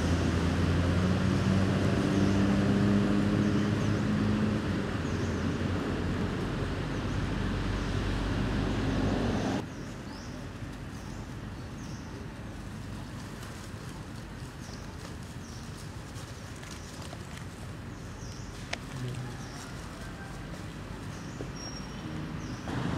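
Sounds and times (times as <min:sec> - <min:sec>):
motor engine humming: 0:16.5 - 0:22.9.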